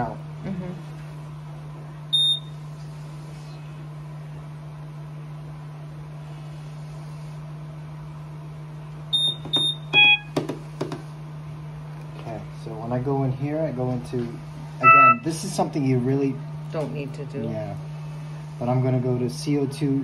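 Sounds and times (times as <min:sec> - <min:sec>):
steady low hum: 0:00.0 - 0:20.0
short high beeps: 0:09.2 - 0:10.3, 0:14.8 - 0:15.3
low alarm tone: 0:09.2 - 0:10.4, 0:14.8 - 0:15.5.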